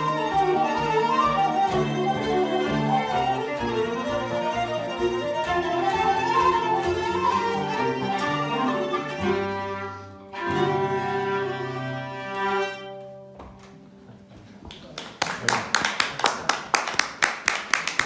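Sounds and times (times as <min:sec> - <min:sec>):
folk ensemble playing dance tune: 0:00.0 - 0:14.0.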